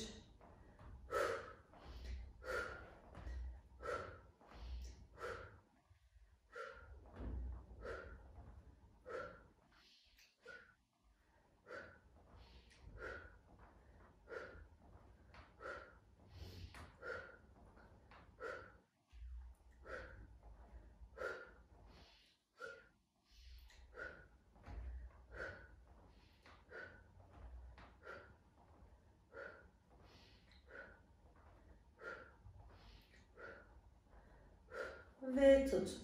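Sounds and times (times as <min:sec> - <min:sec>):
woman breathing hard: 0:00.3 - 0:35.2.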